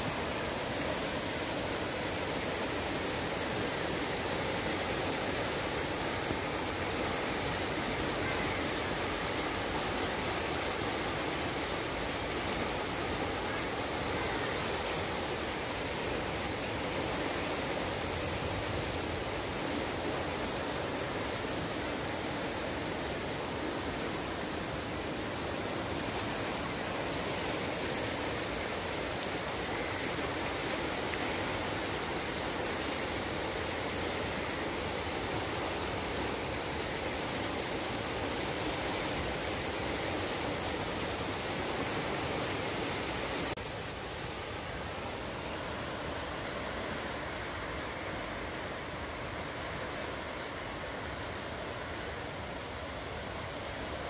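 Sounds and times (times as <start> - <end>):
floodwater rushing: 0.0 - 54.0.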